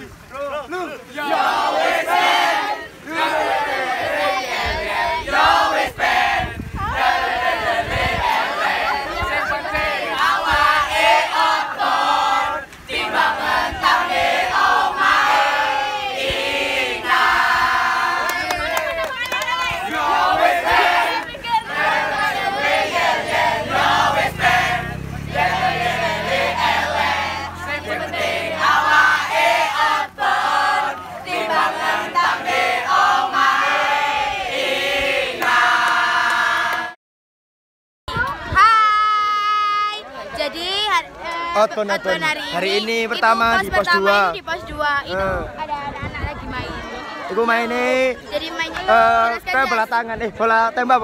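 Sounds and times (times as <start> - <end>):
group of young voices cheering: 6.8 - 33.9.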